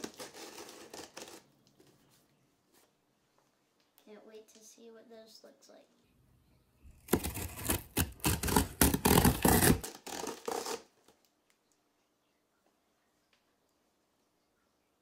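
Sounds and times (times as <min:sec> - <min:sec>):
knife slicing through packing tape: 0:07.1 - 0:10.9.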